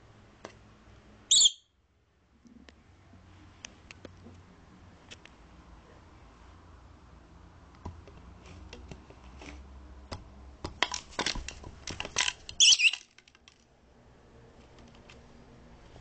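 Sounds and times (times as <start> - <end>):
bird squawk: 1.3 - 1.7, 12.6 - 13.0.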